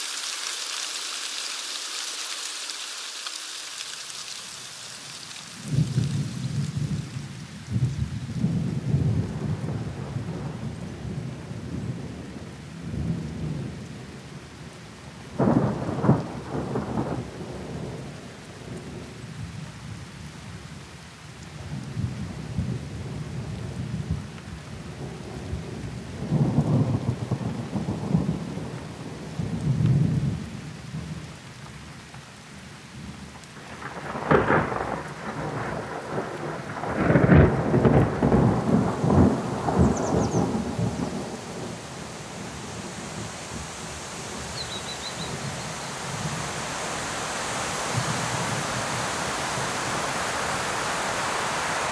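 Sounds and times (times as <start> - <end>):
rain hiss: 0.0 - 51.9
thunder rolling: 5.4 - 12.0, 33.6 - 44.6.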